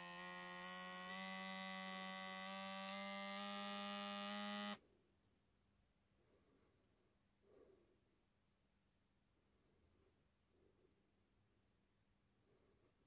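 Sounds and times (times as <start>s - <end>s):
small pump humming: 0.0s - 4.8s.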